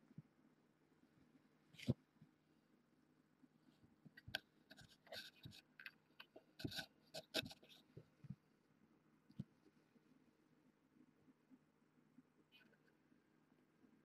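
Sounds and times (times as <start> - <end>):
scratching and rustling: 3.7 - 8.4.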